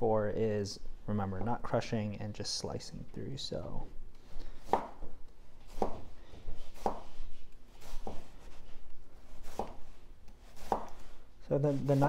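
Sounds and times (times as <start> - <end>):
knife slicing onion: 5.7 - 12.0.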